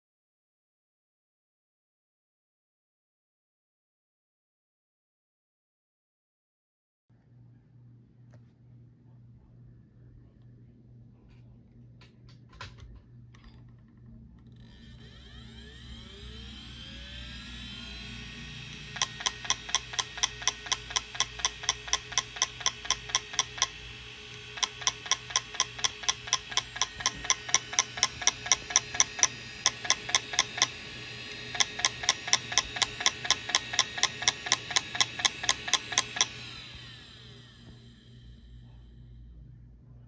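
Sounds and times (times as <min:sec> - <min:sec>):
hard drive spinning whirr: 0:13.4 - 0:40.0
hard drive head clicking: 0:18.4 - 0:36.9.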